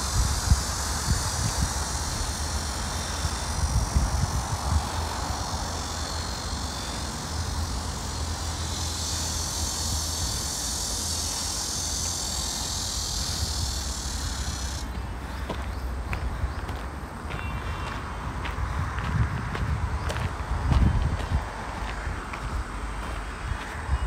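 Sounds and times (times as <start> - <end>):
high hiss: 0.0 - 19.0.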